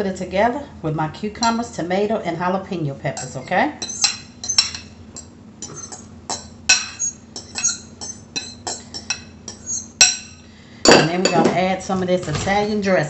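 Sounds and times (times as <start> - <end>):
fork scraping ceramic bowl: 3.2 - 10.3.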